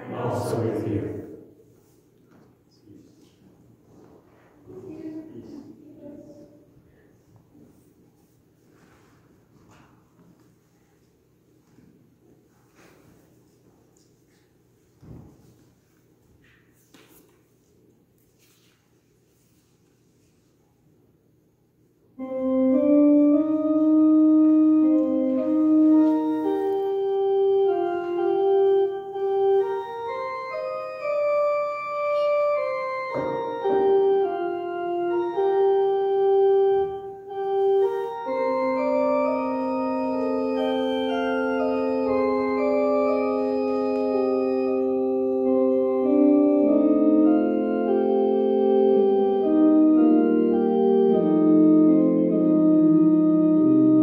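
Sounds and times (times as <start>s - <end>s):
church organ chords: 0.0s - 1.6s, 22.1s - 54.0s
long low organ note: 22.2s - 54.0s.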